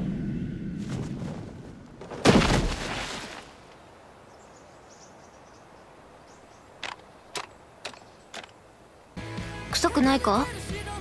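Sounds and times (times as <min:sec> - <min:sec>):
heavy body thud: 0:02.0 - 0:03.2
insects chirping: 0:03.5 - 0:09.2.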